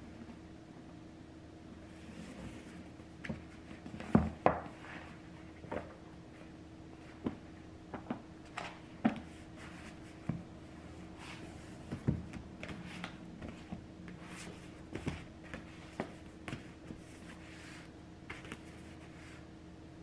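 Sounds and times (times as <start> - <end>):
fingertips tapping on book covers: 11.9 - 17.3.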